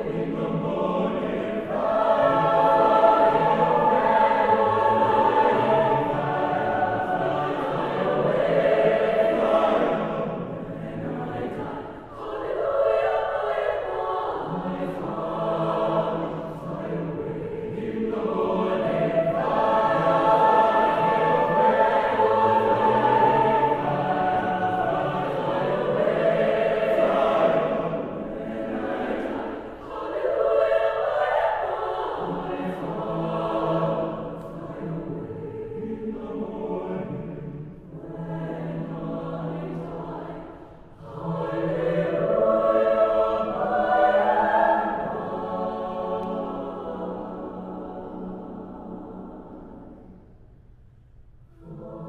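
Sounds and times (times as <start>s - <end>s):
mixed choir singing: 0.0s - 50.2s, 51.6s - 52.0s.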